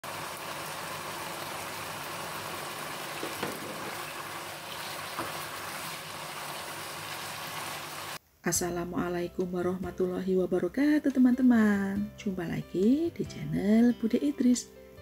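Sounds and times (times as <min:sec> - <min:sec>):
stir-fry sizzling in a wok: 0:00.0 - 0:08.2.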